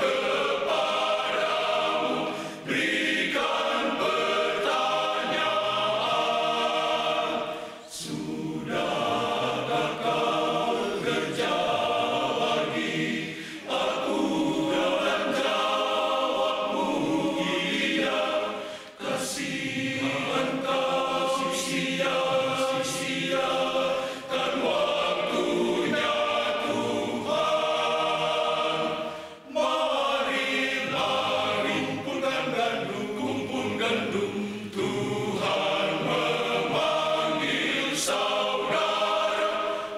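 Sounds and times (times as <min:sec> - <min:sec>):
men's choir singing: 0:00.0 - 0:39.9.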